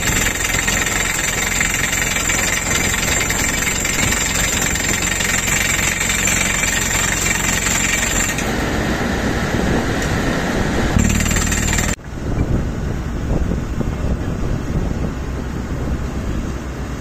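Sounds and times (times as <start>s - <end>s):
pneumatic drill hammering rock: 0.0s - 8.6s, 11.0s - 12.0s
engine running: 0.0s - 17.0s.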